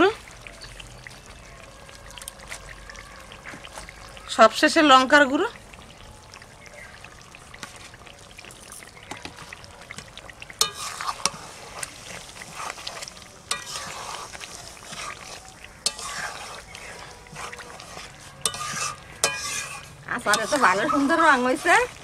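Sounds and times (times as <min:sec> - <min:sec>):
hot oil sizzling: 0:00.0 - 0:22.0
metal spatula scraping a pan: 0:10.6 - 0:22.0.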